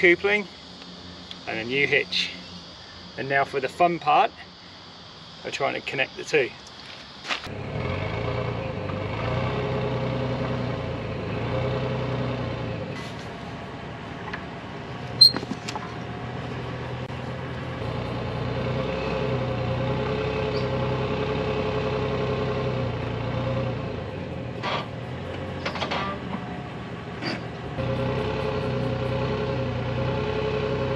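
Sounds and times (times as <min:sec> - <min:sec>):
car engine idling: 0:12.8 - 0:30.9.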